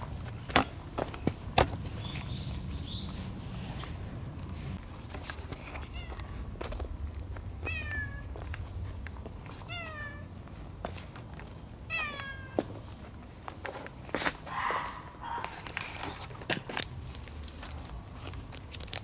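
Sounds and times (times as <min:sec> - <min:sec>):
cat meowing: 0:07.6 - 0:08.3, 0:09.6 - 0:10.3, 0:11.9 - 0:12.6.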